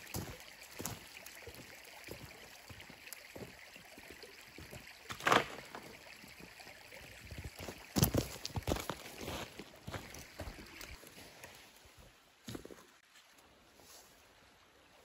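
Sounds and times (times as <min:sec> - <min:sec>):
footsteps crunching on gravel and leaves: 0:00.0 - 0:02.8, 0:07.3 - 0:13.1.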